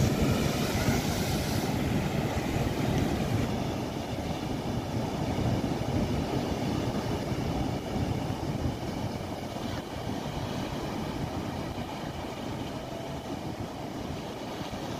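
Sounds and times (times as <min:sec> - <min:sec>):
wave bursting into spray: 0:00.0 - 0:04.0
low rumble of surf: 0:00.0 - 0:14.9.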